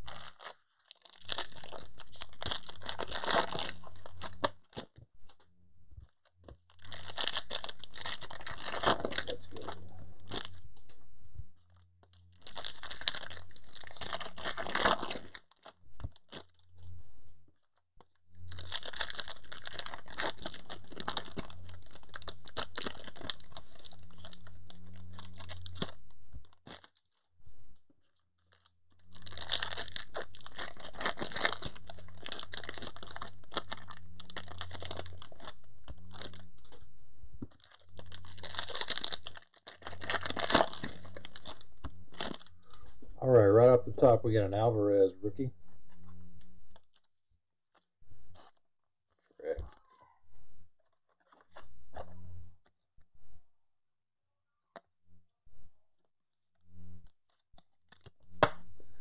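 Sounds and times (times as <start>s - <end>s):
foil wrappers crinkling and tearing: 0.0s - 5.0s, 6.1s - 10.9s, 11.6s - 16.9s, 17.6s - 27.3s, 28.0s - 36.8s, 37.4s - 44.1s, 46.7s - 47.1s, 50.8s - 52.1s, 57.0s - 58.2s.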